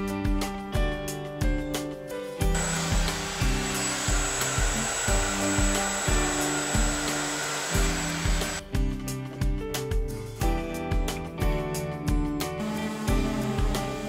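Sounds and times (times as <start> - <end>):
background music with beat: 0.0 - 14.0
electric router whining: 2.6 - 8.6, 12.6 - 14.0.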